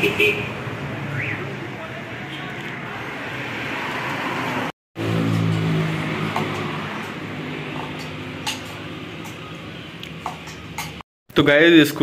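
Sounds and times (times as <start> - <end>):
car passing: 0.6 - 9.2.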